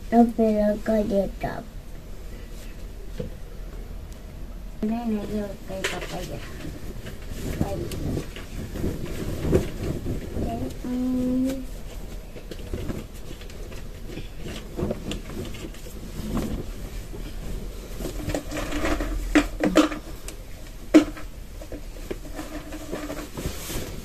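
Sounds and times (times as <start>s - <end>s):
cloth rustling: 5.1s - 24.0s.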